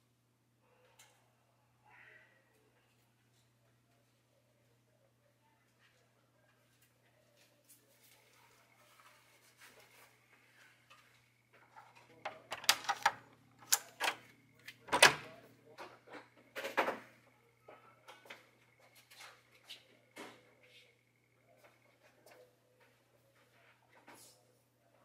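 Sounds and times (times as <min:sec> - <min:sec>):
door handle and lock clicking: 0:12.4 - 0:14.2, 0:14.9 - 0:15.3.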